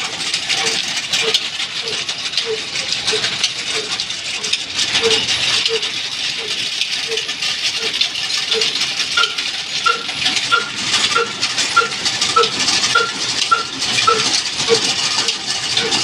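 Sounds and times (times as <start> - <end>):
diesel engine and machinery rattling: 0.0 - 16.0
short chirp: 8.5 - 14.3.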